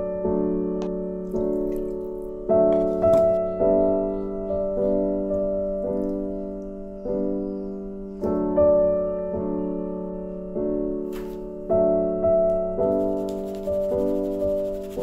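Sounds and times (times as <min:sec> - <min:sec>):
slow gentle piano chords: 0:00.0 - 0:15.0.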